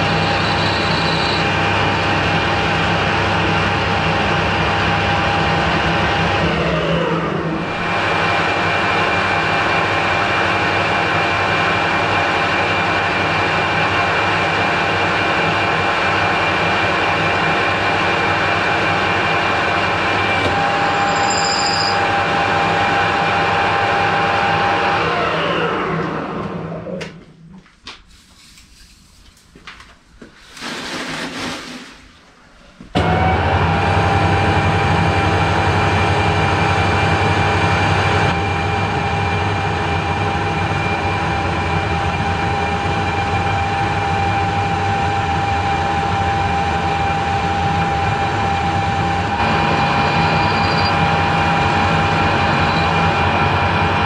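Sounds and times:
metal lathe gear whine: 0:00.0 - 0:10.2, 0:15.5 - 0:25.8, 0:33.3 - 0:54.0.

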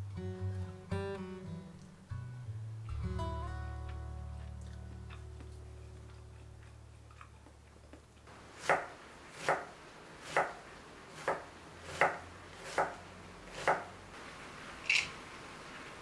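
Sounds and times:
knife chopping on wooden board: 0:08.6 - 0:10.6, 0:11.2 - 0:13.9.

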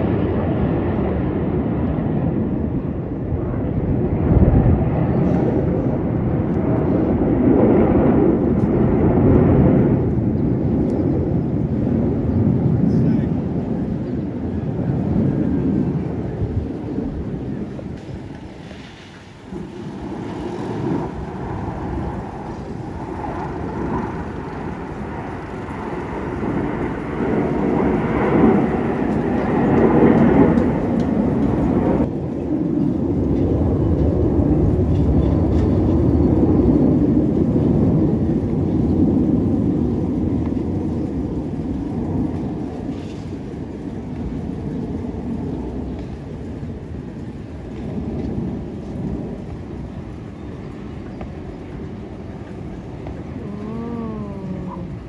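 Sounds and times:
jet engines distant rumble: 0:00.0 - 0:55.0.

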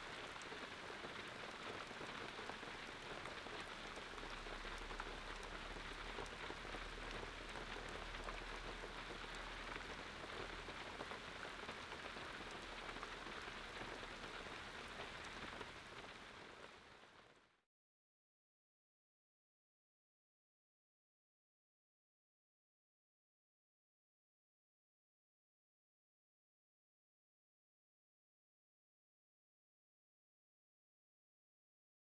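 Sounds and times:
steady rain: 0:00.0 - 0:17.6.

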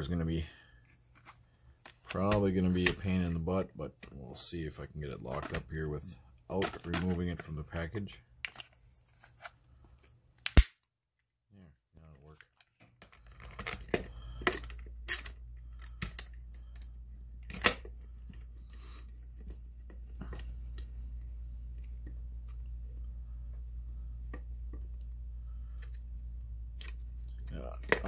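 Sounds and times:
low hum: 0:13.1 - 0:28.0.

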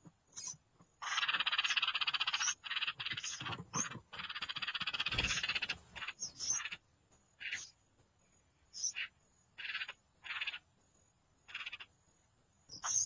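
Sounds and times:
nestling birds begging calls: 0:00.3 - 0:06.8, 0:07.4 - 0:07.8, 0:08.7 - 0:10.7, 0:11.4 - 0:12.0, 0:12.7 - 0:13.0.

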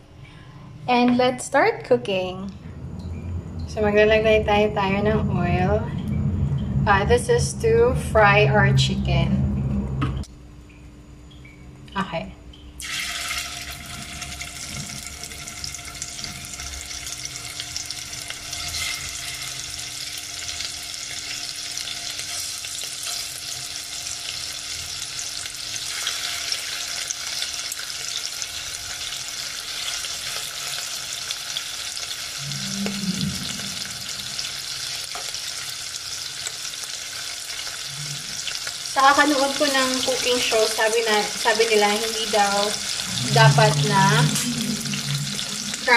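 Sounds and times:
short low sound: 0:02.3 - 0:10.3, 0:32.4 - 0:34.5, 0:42.9 - 0:45.9
chicken sizzling in hot oil: 0:12.8 - 0:45.9.

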